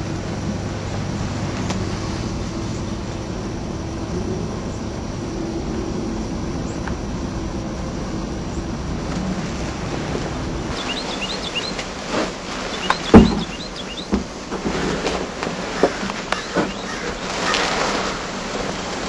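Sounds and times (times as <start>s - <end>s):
steady low rumble: 0.0s - 19.0s
small bird chirping: 10.8s - 11.8s, 12.6s - 14.2s, 16.4s - 17.0s
loud dull thump: 13.0s - 14.3s.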